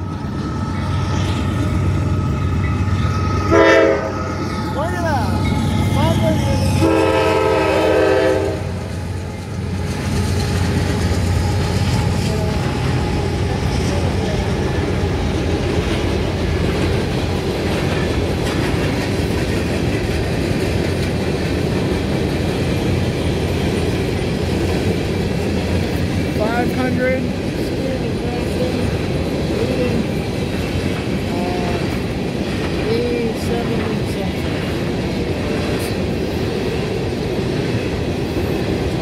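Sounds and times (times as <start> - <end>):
hopper cars rattling on rails: 0.0 - 39.0
train horn: 3.3 - 4.4, 6.6 - 8.9.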